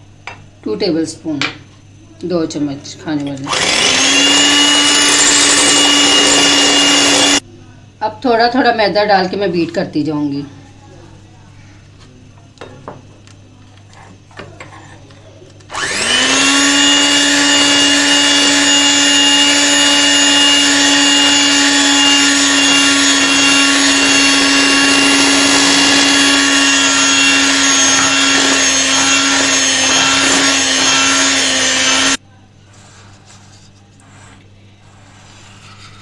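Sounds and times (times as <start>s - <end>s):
electric hand mixer motor hum: 3.5s - 7.4s, 15.7s - 32.2s.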